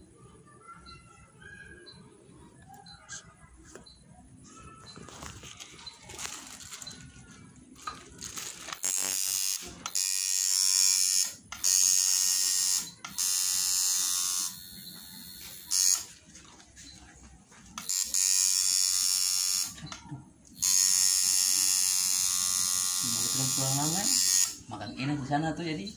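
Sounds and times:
tattoo machine buzzing: 8.7 - 16.1, 17.8 - 19.8, 20.6 - 24.7.

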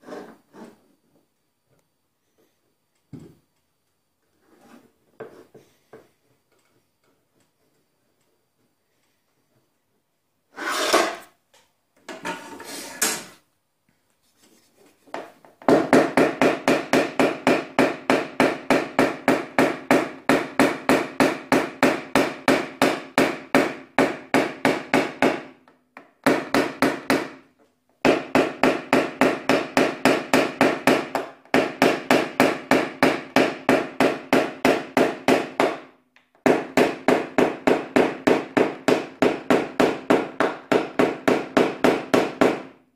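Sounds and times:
hammer tapping on sheet metal: 15.2 - 27.4, 28.0 - 42.8.

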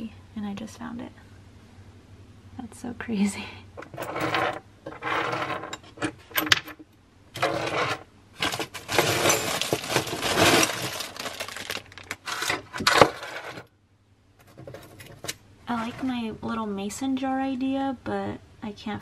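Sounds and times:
metal screws clinking: 8.4 - 10.8
plastic bag crinkling: 8.4 - 12.7.

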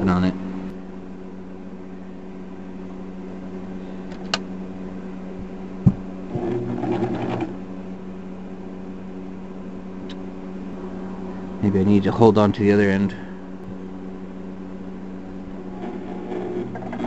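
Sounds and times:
electric sewing machine humming: 6.3 - 7.6, 15.5 - 17.0.

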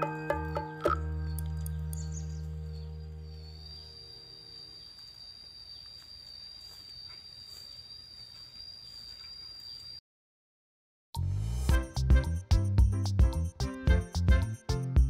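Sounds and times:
background music: 0.0 - 3.8, 11.2 - 15.0
high-pitched insect trill: 2.9 - 10.0.

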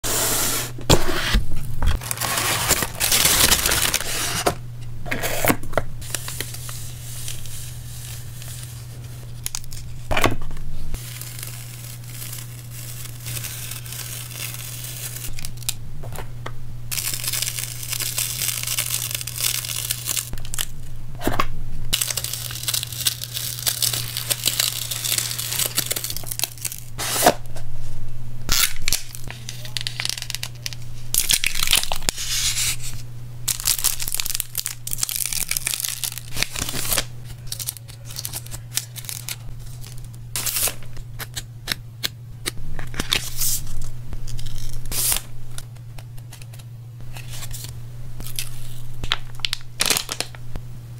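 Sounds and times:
steady low hum: 0.0 - 50.9
tape tearing and peeling: 0.9 - 4.6, 11.0 - 15.8, 16.9 - 20.7, 22.0 - 27.4, 28.5 - 32.9, 33.5 - 50.3
cardboard box crinkling: 1.3 - 4.6, 11.0 - 15.7, 22.0 - 27.4, 33.5 - 40.8.

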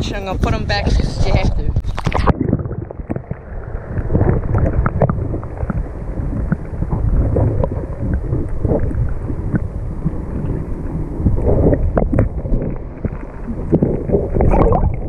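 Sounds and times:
muffled underwater rumble: 0.0 - 15.0
small underwater knocks and clicks: 1.8 - 3.4, 4.2 - 9.7, 11.3 - 14.9.

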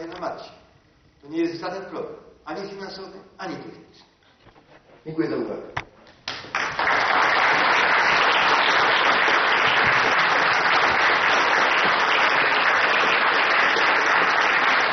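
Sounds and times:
audience applauding: 6.2 - 14.9.

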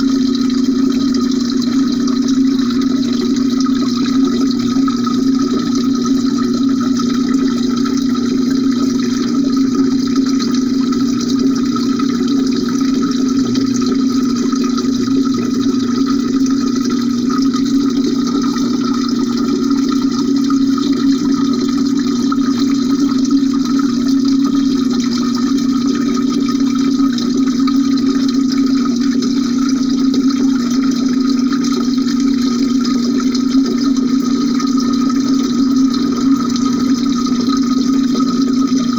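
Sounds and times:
water rushing heard underwater: 0.0 - 38.9.

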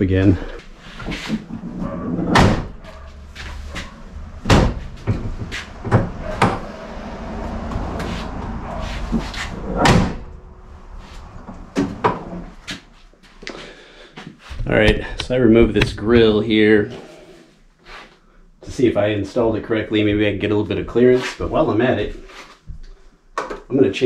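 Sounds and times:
metal hood slamming: 2.2 - 7.4, 8.8 - 10.9.

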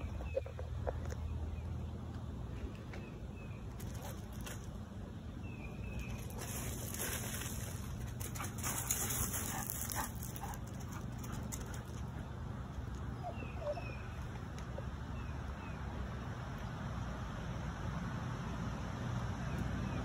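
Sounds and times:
dog whining: 13.2 - 14.1.

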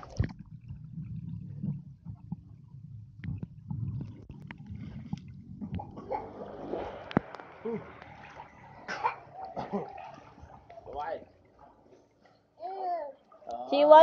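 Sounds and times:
underwater water rumble: 0.0 - 12.3
underwater clicks and bubbling: 0.0 - 12.4
splash: 4.0 - 12.3.

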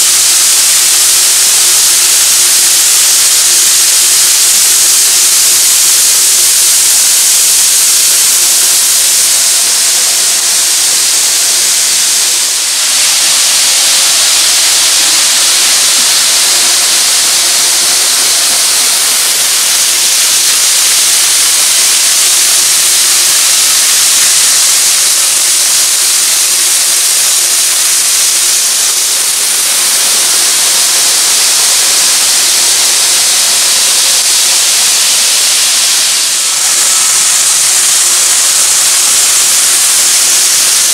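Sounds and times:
model train wheels hissing on track: 0.0 - 40.9.

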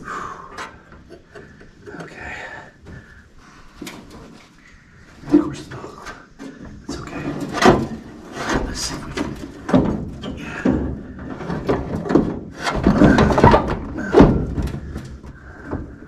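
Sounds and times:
scraping and rustling: 0.6 - 16.0
knocks and clunks of car parts: 6.2 - 16.0.

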